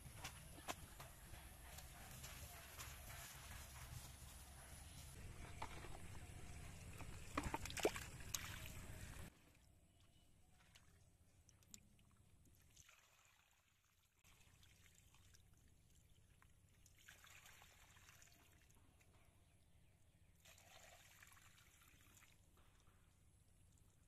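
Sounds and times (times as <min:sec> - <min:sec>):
faint trickling water: 0:06.8 - 0:19.0.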